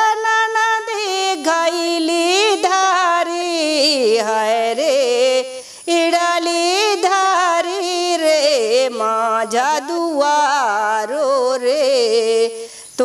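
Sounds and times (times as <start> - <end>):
woman singing unaccompanied: 0.0 - 13.0.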